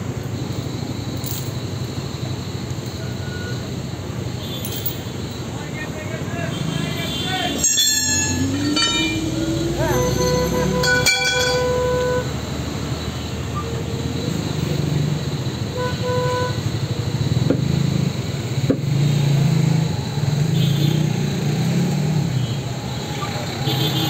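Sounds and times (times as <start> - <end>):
road traffic: 0.0 - 24.0
vehicle horn tooting: 6.3 - 12.4, 15.7 - 16.7, 23.6 - 24.0.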